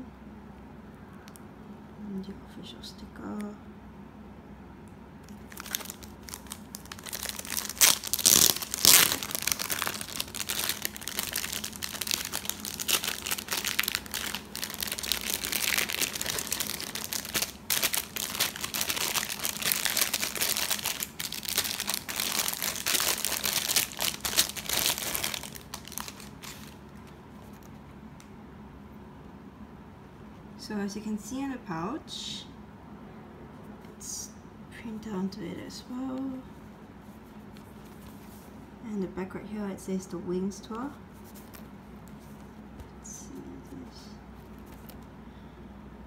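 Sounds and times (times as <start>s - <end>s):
plastic bag crinkling: 5.2s - 27.8s, 44.4s - 45.1s.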